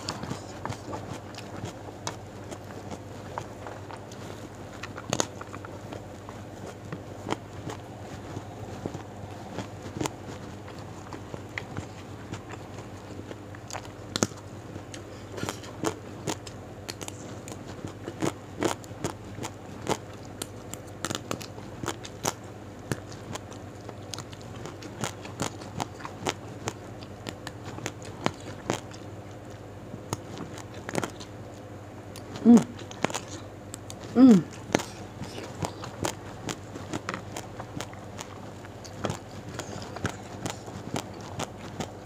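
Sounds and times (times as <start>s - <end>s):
crisp chewing crunches: 0.0s - 42.0s
person humming: 32.4s - 32.8s, 34.0s - 35.9s.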